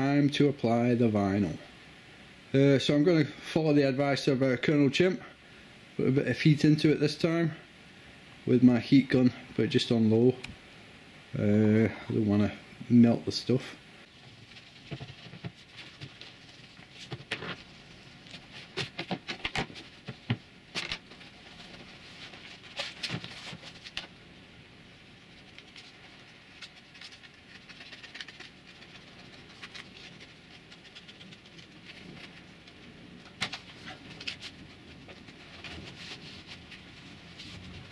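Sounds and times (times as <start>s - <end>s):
plastic film crinkling: 25.4s - 37.7s.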